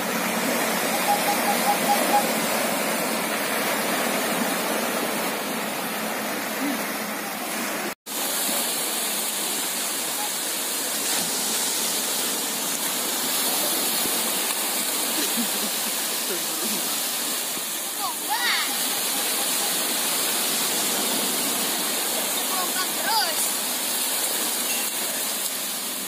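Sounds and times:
surf breaking and washing: 0.0s - 26.0s.

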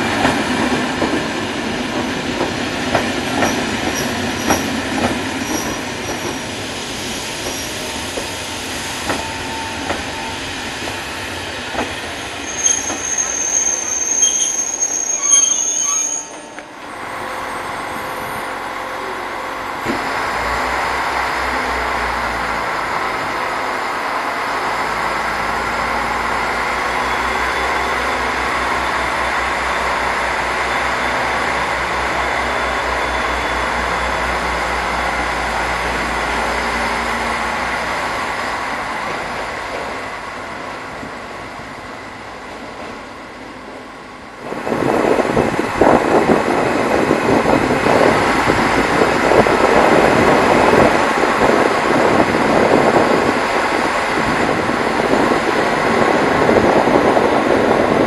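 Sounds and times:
train running slowly: 0.0s - 58.0s
wind buffeting microphone: 44.4s - 58.0s.

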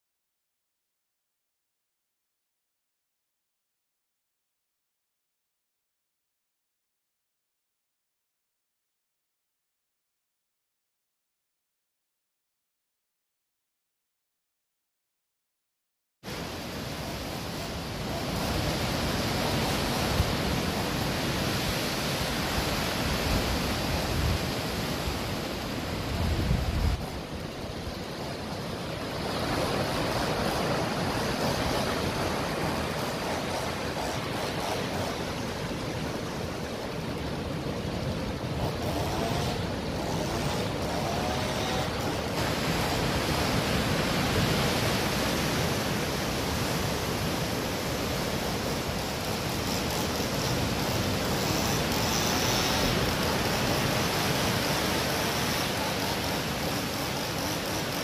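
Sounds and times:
waves washing over rocks: 16.3s - 58.0s.

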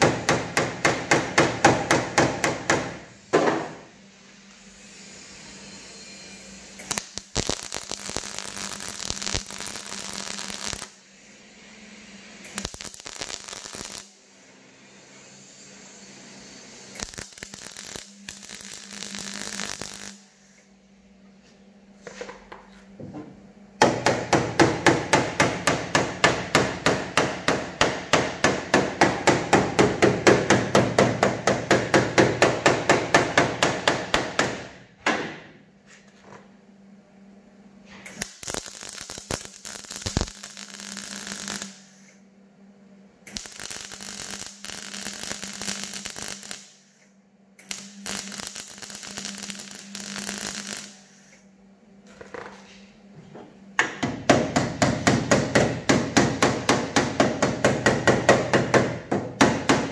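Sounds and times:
hammering on sheet metal: 0.0s - 3.8s, 23.8s - 35.4s, 53.8s - 59.9s
arc welding crackle: 6.2s - 20.6s, 37.9s - 42.1s, 43.2s - 47.0s, 47.6s - 51.3s.

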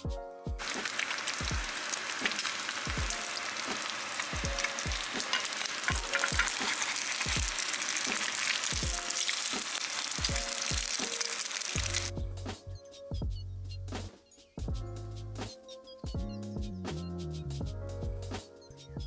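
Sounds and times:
background music: 0.0s - 19.0s
egg sizzling in oil: 0.6s - 12.1s.

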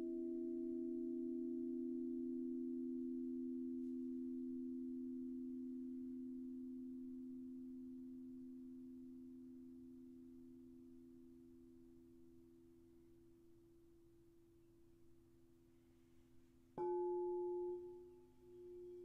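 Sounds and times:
singing bowls ringing: 16.8s - 19.0s.

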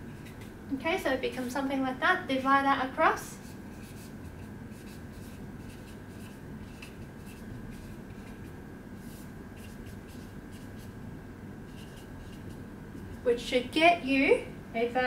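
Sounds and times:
faint steady hum: 0.0s - 15.0s
marker scratching on whiteboard: 3.4s - 11.0s, 11.7s - 13.2s.

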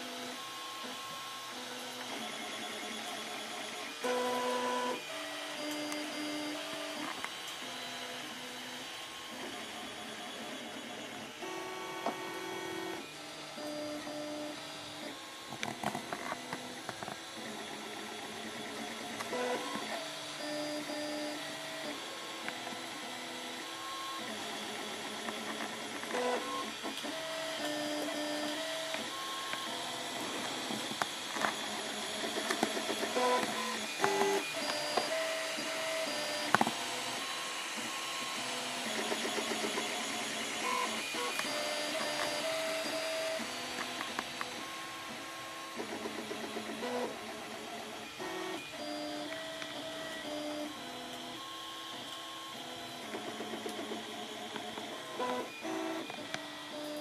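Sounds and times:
stepper motors whining: 16.0s - 57.0s.

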